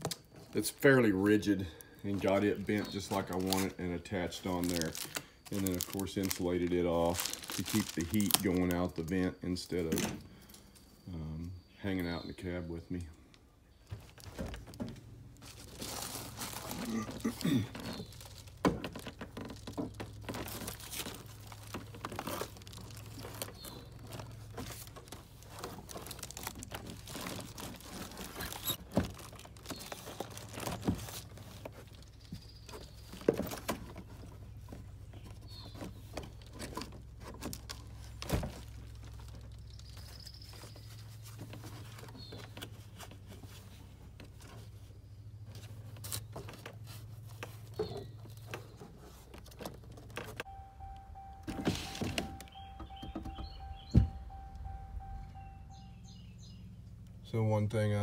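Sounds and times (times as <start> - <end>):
foil and bubble wrap crinkling: 2.1 - 9.3, 15.4 - 44.9
low steady hum: 30.2 - 57.8.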